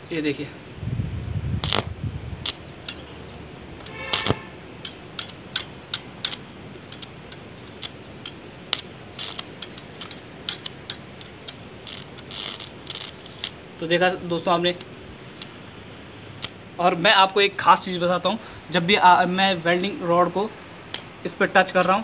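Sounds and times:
welding rod crackling snaps: 1.6s - 16.6s, 20.9s - 22.0s.

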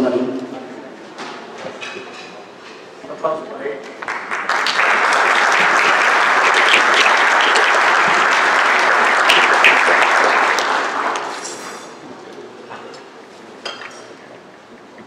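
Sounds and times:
audience applauding: 4.0s - 11.6s.

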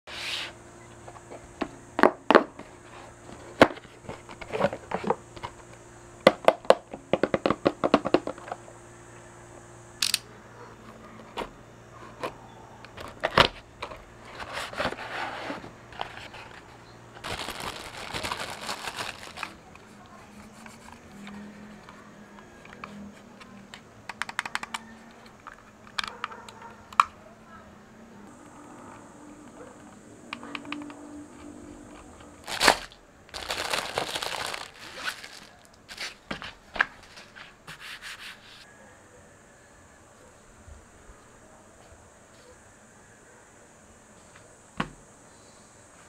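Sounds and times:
packaging rustling: 14.3s - 19.8s, 32.2s - 37.4s.

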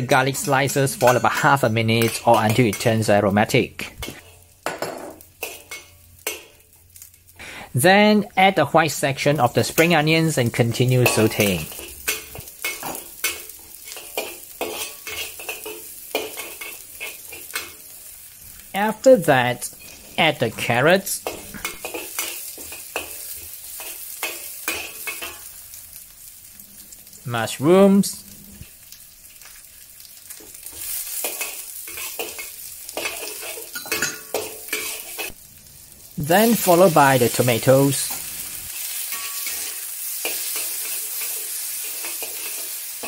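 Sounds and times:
garlic sizzling in hot oil: 0.0s - 43.0s
metal spatula scraping a wok: 11.0s - 17.8s, 30.7s - 35.4s, 38.4s - 43.0s.

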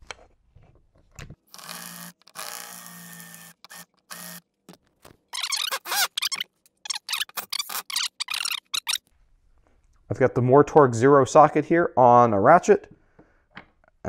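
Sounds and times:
cordless drill motor: 1.5s - 4.4s
drill bit grinding screw head: 1.5s - 4.4s, 5.4s - 9.0s.

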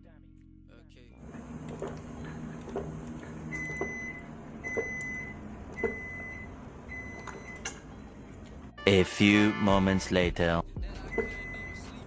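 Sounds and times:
electronic beep: 11.1s - 12.0s.

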